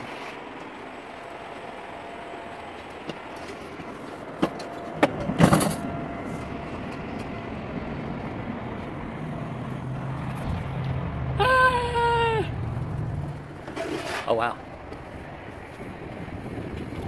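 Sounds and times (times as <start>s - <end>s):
sled rumbling on metal rail: 3.0s - 9.2s, 12.0s - 17.0s.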